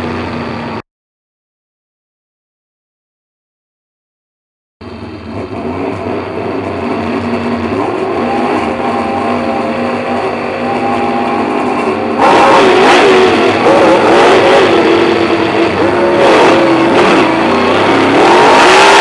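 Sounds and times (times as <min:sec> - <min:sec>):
race car engine revving: 0:04.8 - 0:19.0.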